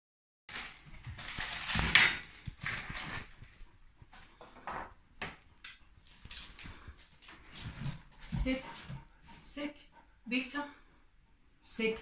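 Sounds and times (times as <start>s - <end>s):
plastic wrapping crinkling: 0.5s - 3.6s.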